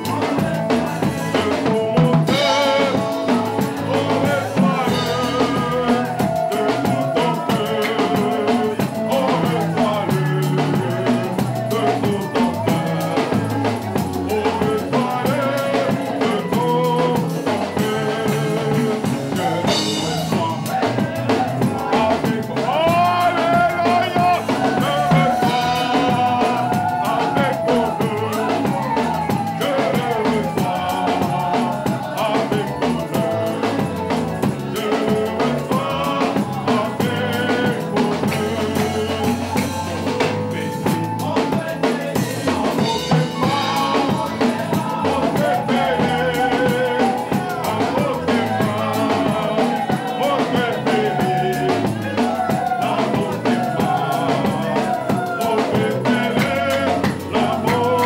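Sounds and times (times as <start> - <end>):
congregation singing: 0.0 - 58.0
drum kit beat: 0.0 - 58.0
live band: 0.0 - 58.0.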